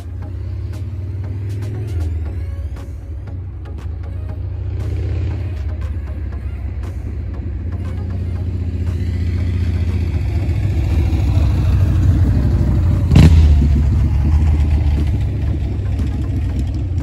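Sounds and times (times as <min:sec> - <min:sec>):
vehicle engine passing: 0:03.9 - 0:17.0.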